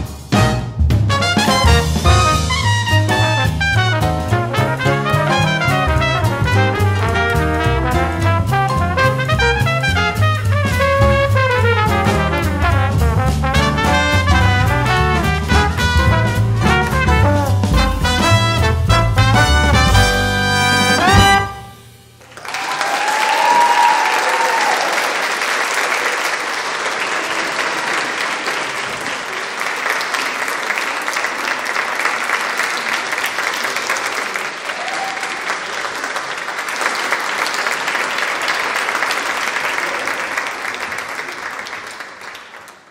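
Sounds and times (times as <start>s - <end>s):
music ending: 14.4s - 22.0s
audience applauding: 22.2s - 42.9s.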